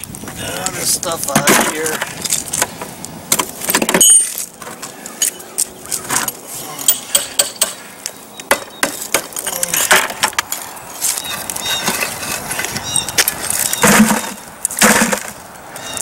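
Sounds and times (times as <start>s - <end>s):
bricks knocking and clinking: 13.7s - 15.4s.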